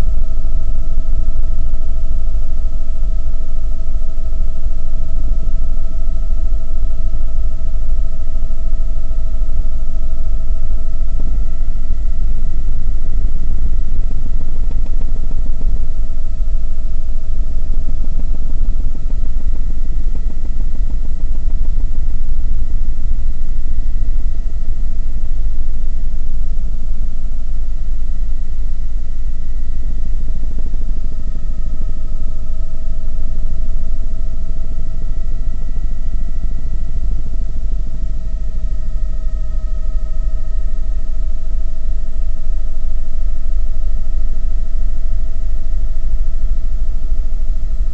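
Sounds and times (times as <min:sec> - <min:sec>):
high whine: 0:00.0 - 0:47.9.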